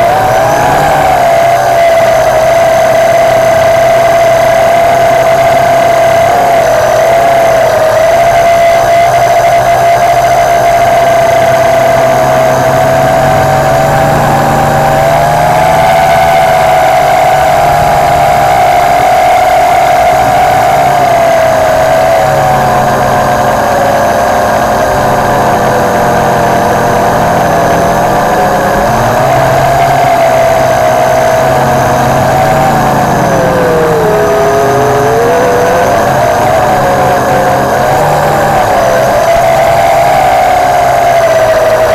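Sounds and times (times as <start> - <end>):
quadcopter motors whining: 0.0 - 41.9.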